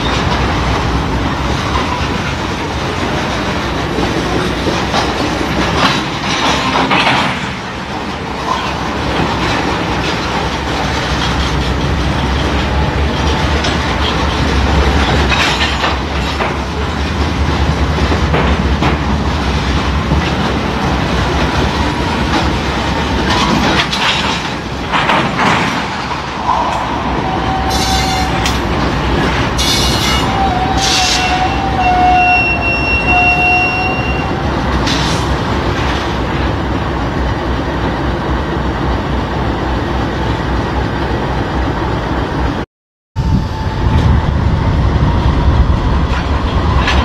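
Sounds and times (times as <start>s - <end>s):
train cars clattering over rail joints: 0.0s - 36.7s
diesel locomotive whine: 0.0s - 42.6s, 43.2s - 47.0s
wheel squeal: 29.6s - 35.0s.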